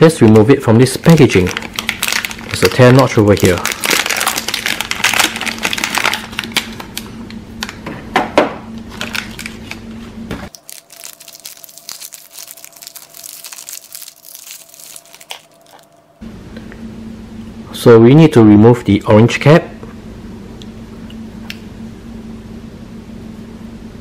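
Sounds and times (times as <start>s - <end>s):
plastic packaging crinkling: 0.8s - 7.8s, 8.9s - 9.8s, 10.5s - 16.1s.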